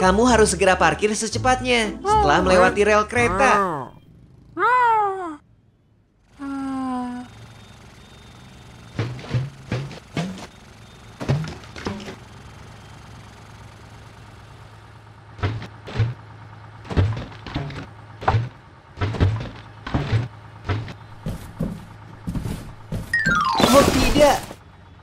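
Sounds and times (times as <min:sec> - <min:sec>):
low engine hum: 0:00.0 - 0:25.0
wheels thudding over tracks: 0:07.3 - 0:25.0.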